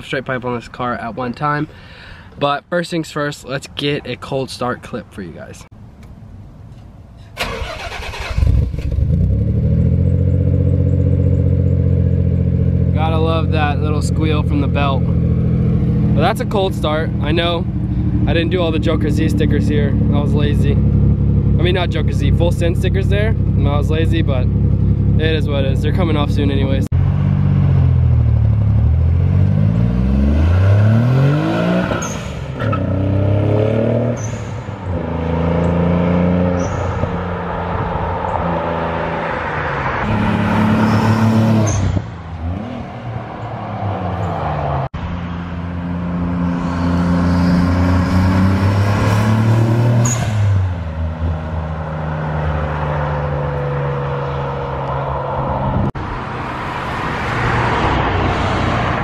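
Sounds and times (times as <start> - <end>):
car engine accelerating past: 27.0 - 44.9, 45.8 - 59.0.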